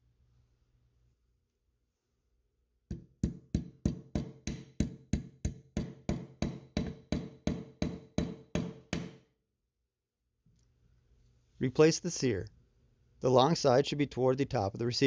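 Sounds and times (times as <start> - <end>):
mallet tapping metal pin: 2.9 - 9.3.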